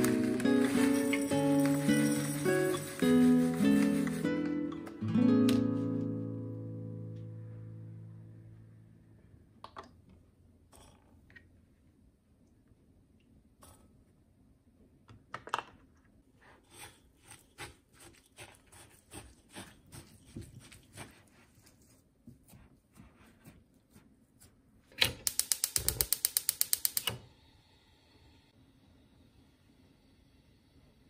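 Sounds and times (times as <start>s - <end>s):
spatula scraping dough in bowl: 0.0s - 4.5s, 16.5s - 23.7s
fast sharp mechanical clicks: 25.2s - 27.2s.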